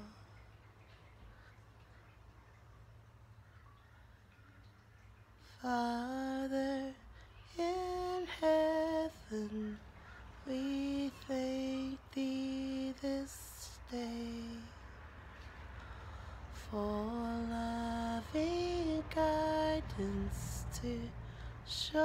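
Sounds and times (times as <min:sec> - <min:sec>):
woman singing a lullaby: 0:00.0 - 0:00.2, 0:05.5 - 0:15.0, 0:16.5 - 0:22.0.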